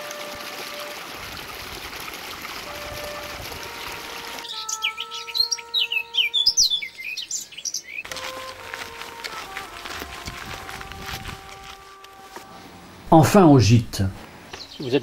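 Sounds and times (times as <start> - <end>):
stream running over stones: 0.0 - 4.5, 8.0 - 11.8
songbird singing: 4.4 - 9.0, 14.5 - 15.0.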